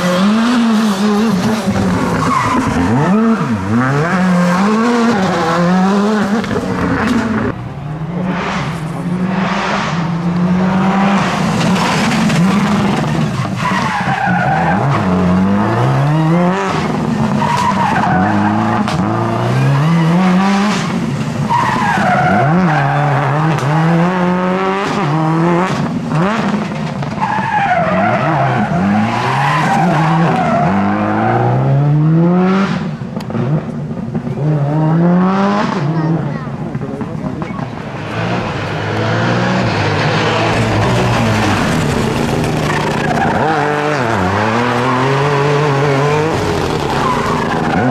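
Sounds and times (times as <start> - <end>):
car engine revving hard: 0.0 - 7.6, 8.2 - 27.1, 37.0 - 47.9.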